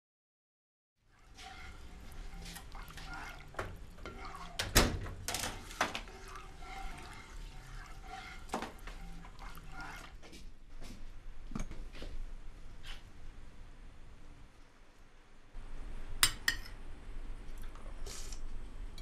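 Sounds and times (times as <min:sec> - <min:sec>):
ladle stirring in a pot: 0:01.0 - 0:11.0.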